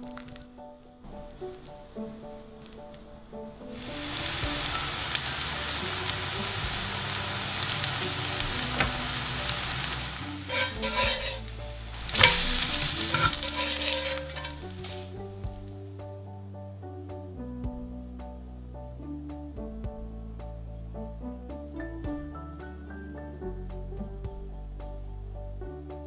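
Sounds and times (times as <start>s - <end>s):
batter sizzling in a pan: 3.7s - 15.6s.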